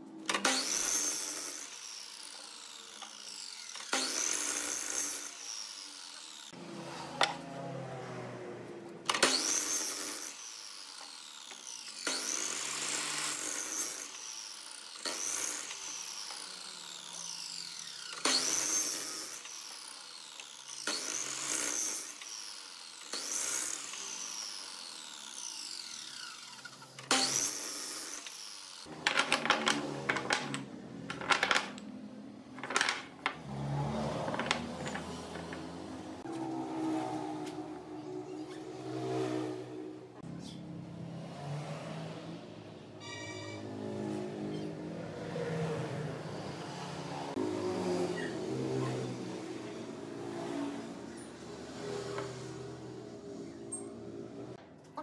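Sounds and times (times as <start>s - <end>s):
miter saw cutting wood: 0.2s - 30.7s, 32.6s - 40.3s, 43.1s - 54.6s
saw blade spinning down: 0.3s - 7.8s.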